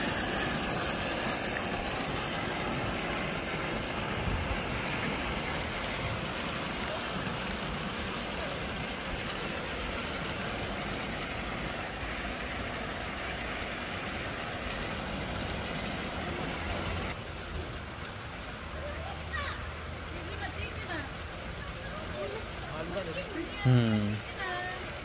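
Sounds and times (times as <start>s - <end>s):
running water rushing: 0.0s - 25.0s.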